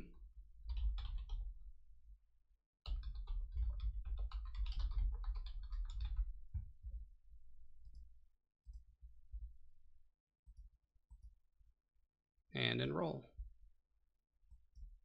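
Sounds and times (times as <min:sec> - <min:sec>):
typing on keyboard: 0:00.6 - 0:01.5, 0:02.8 - 0:06.4.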